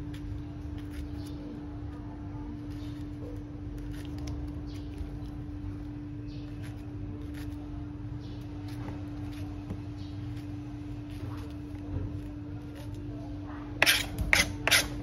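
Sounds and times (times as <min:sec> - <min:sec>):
steady low hum: 0:00.0 - 0:15.0
knife scraping cuts in pineapple: 0:13.7 - 0:15.0.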